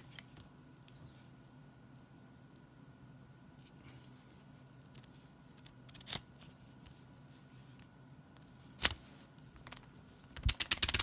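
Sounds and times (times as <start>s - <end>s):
paper rustling and crackling: 8.7s - 11.0s.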